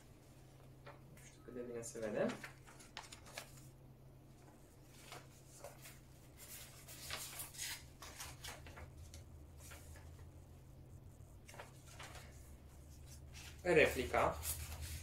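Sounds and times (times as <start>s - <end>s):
low steady hum: 0.0s - 15.0s
paper rustling: 2.0s - 3.7s, 4.4s - 10.4s, 11.3s - 15.0s.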